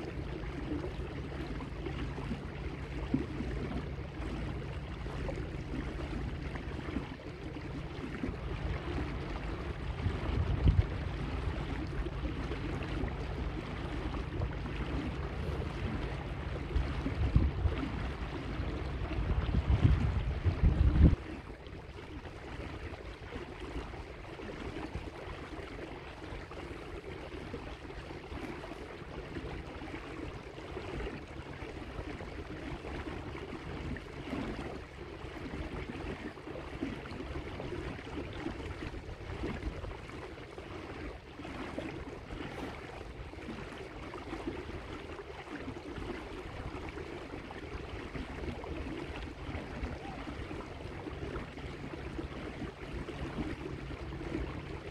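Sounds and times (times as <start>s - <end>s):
water lapping against hull: 0.0s - 54.9s.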